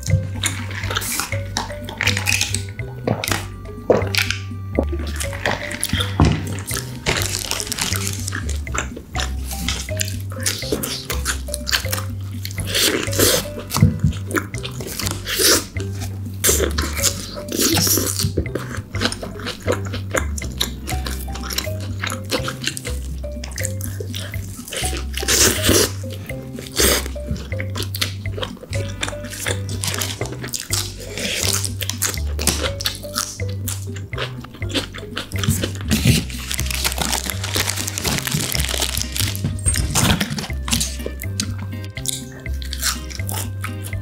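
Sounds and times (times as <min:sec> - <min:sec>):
background music with bass line: 0:00.0 - 0:44.0
wet biting and chewing: 0:00.0 - 0:44.0
paper wrapper crinkling: 0:07.1 - 0:08.4, 0:36.0 - 0:40.9.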